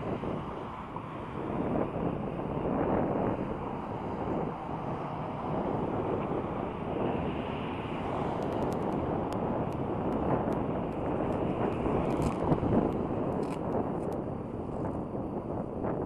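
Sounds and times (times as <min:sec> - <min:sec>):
road traffic noise: 0:00.0 - 0:16.0
wind rumbling on microphone: 0:00.0 - 0:16.0.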